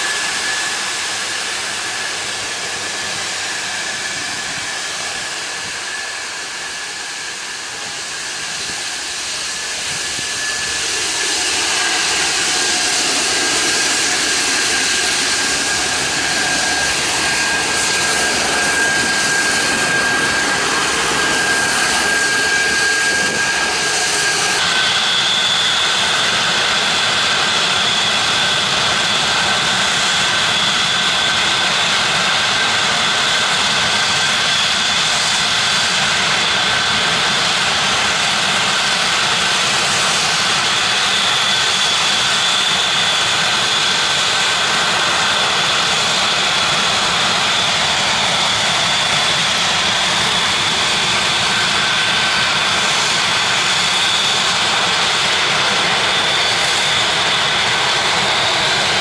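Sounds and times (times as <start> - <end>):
higher whine: 0.0 - 33.0
high whine: 0.0 - 33.2
jet engines running: 0.0 - 59.0.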